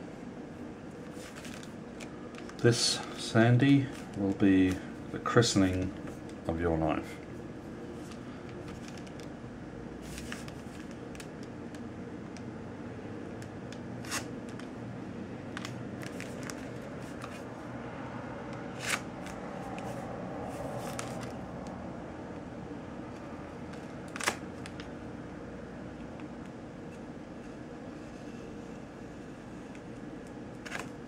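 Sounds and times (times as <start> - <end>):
steady low hum: 0.0 - 31.0
paper rustling and crackling: 1.0 - 6.5, 8.0 - 9.3, 10.0 - 11.5, 15.5 - 17.5, 18.6 - 21.4, 30.6 - 31.0
knife slitting paper envelope: 14.0 - 14.3.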